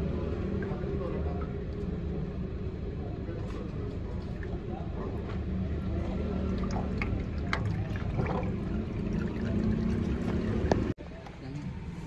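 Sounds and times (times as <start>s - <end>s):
oil trickling into metal tray: 5.8s - 10.9s.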